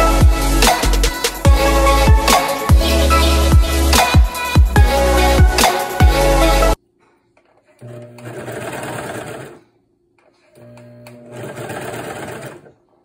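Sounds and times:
serger stitching fabric: 7.9s - 9.6s, 11.2s - 12.7s.

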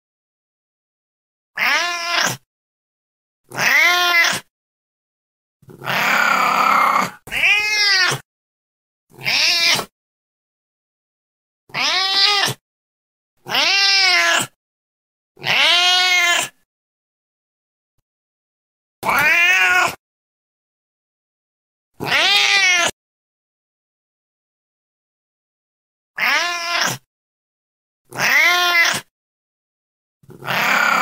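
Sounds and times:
cat meowing: 1.6s - 2.4s, 3.5s - 4.5s, 5.8s - 8.2s, 9.2s - 9.9s, 11.7s - 12.6s, 13.4s - 14.6s, 15.4s - 16.6s, 19.0s - 20.0s, 22.0s - 23.0s, 26.2s - 27.1s, 28.1s - 29.1s, 30.4s - 31.0s.

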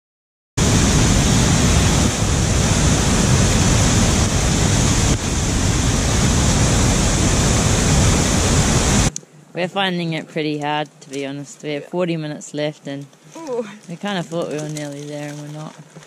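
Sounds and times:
waterfall rushing: 0.6s - 9.1s.

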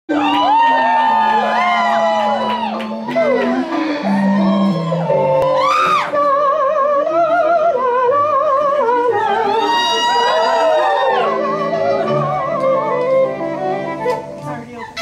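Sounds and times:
operatic singing: 0.1s - 14.0s
lower accompaniment: 0.2s - 15.0s.

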